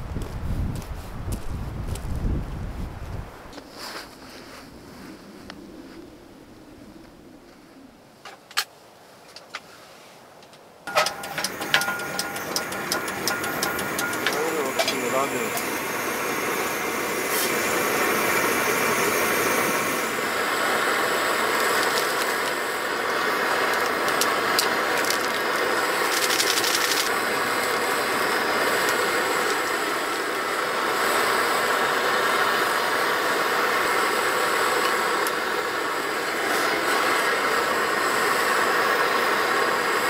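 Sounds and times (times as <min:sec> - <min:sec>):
car engine and road noise: 0:00.0 - 0:40.0
sharp clicks: 0:10.4 - 0:15.7
rapid ticking: 0:10.9 - 0:15.9, 0:23.4 - 0:27.2.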